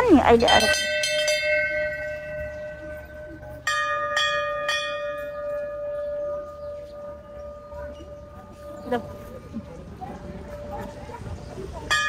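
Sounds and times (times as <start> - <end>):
bell ringing: 0.0 - 9.3.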